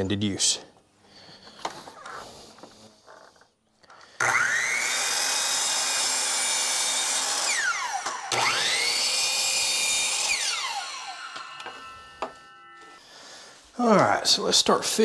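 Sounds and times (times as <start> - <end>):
electric miter saw whining: 2.7 - 14.0.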